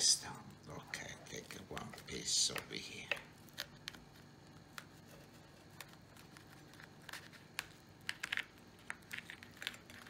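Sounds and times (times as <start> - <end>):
knife scraping pie crust: 3.5 - 7.6.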